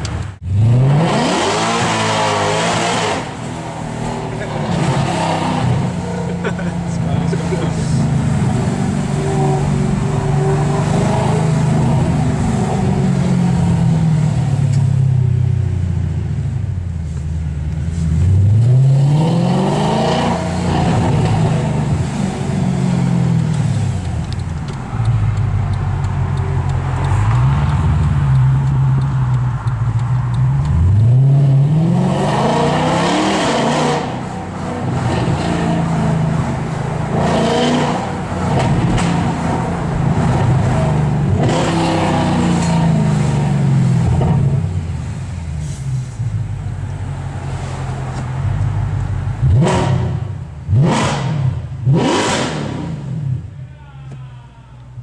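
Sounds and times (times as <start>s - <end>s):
car engine accelerating hard: 0.3s - 15.1s, 17.9s - 46.2s, 46.8s - 53.6s
gear changes: 20.7s - 31.8s.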